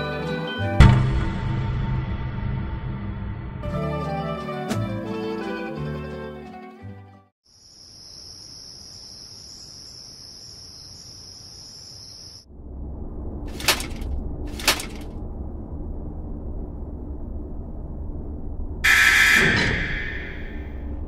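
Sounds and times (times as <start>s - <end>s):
low hum: 0.8s - 3.6s, 12.5s - 21.0s
crickets chirring: 7.5s - 12.5s.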